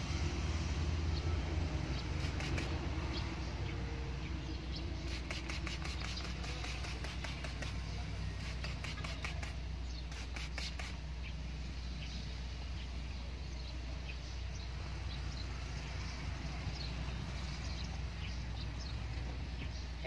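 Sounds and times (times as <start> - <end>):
steady low hum: 0.0 - 20.0
spray bottle spraying: 2.0 - 3.1, 5.0 - 11.0.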